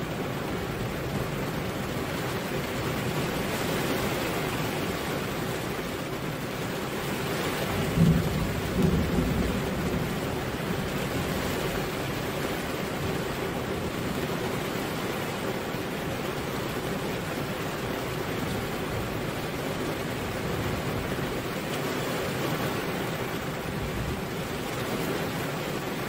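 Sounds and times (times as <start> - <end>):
rain falling: 0.0 - 26.0
low rumble of thunder: 7.5 - 14.2, 22.8 - 25.0.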